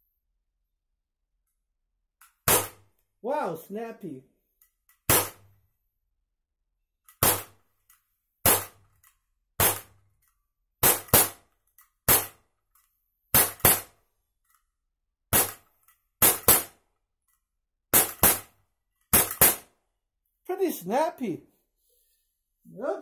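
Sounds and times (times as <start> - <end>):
air pistol shots: 2.4 - 2.9, 5.1 - 5.5, 7.1 - 7.6, 8.4 - 8.9, 9.6 - 10.0, 10.8 - 11.5, 12.1 - 12.4, 13.3 - 14.0, 15.3 - 16.8, 17.9 - 19.8.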